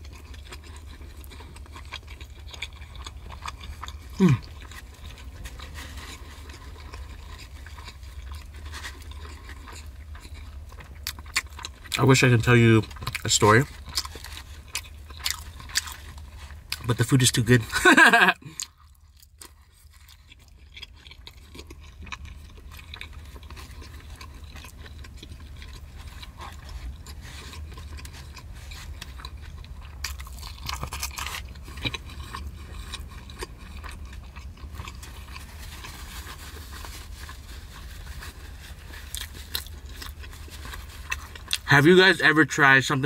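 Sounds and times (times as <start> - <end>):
person chewing food: 0.0 - 41.9
low steady hum: 0.0 - 43.0.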